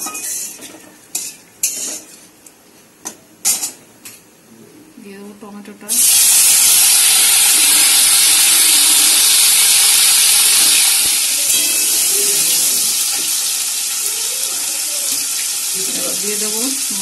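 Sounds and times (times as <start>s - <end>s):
tomatoes sizzling in hot oil: 0.0s - 2.1s, 5.9s - 17.0s.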